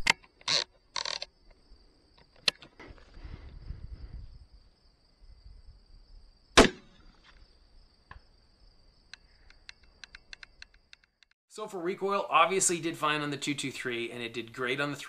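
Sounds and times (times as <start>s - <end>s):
rifle shot with echo: 6.6s - 7.0s.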